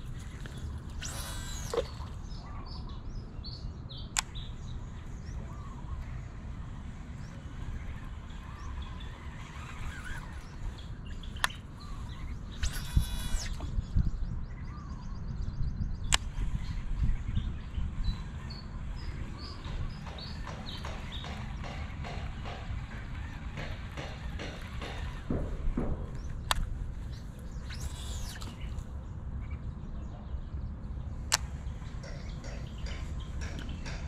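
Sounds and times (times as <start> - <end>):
small birds chirping: 0.0 - 34.0
wind rumble on microphone: 0.0 - 34.0
sharp click: 11.3 - 11.6, 16.0 - 16.4, 19.4 - 26.7, 31.3 - 34.0.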